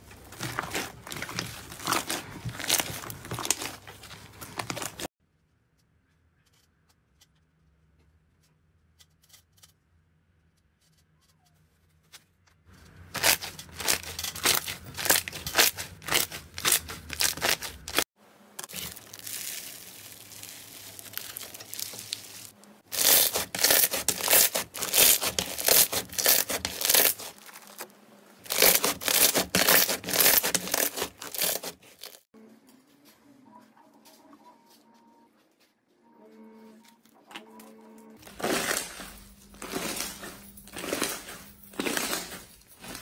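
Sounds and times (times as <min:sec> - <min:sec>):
slime crackling and popping: 0:18.6 - 0:27.8.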